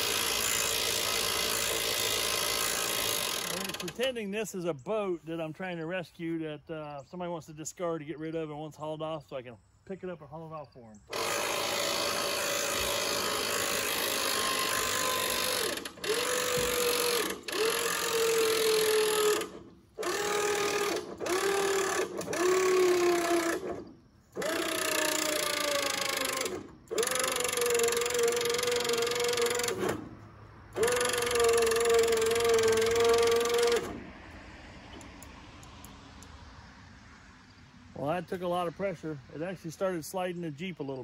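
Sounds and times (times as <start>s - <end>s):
electric winch motor whining: 0.0s - 4.1s, 11.1s - 35.3s.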